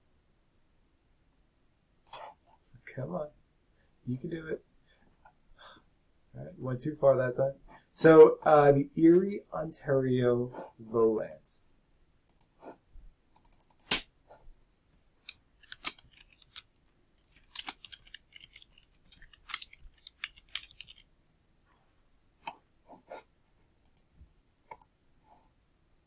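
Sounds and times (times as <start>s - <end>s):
mouse clicks: 12.3s - 12.6s, 23.8s - 25.0s
keyboard typing: 13.4s - 14.0s, 15.2s - 21.1s, 23.8s - 24.1s.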